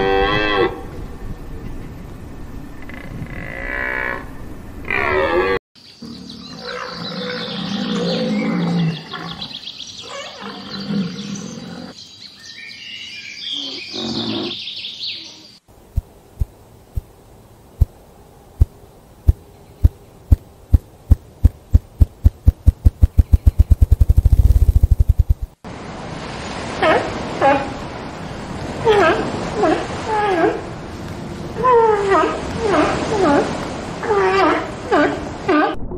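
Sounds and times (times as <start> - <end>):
sharp pops speeding into a roll: 20.3 - 25.6
high bird chatter: 21.5 - 25.1.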